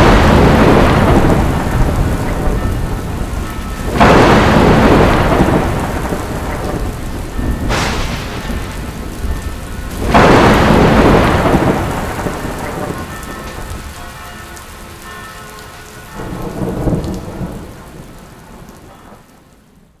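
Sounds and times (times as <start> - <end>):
sharp thunderclap: 0.0 - 13.9
rolling thunder rumble: 0.0 - 14.8, 16.1 - 20.0
rain falling: 0.0 - 20.0.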